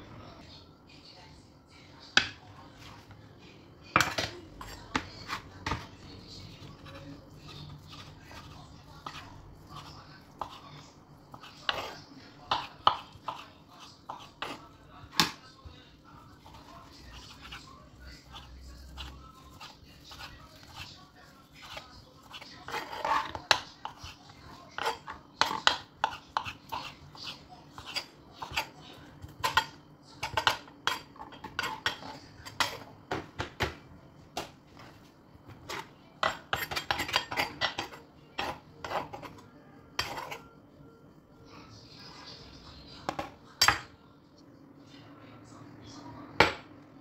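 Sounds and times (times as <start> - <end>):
whisk clicking and scraping a pot: 16.3 - 32.8.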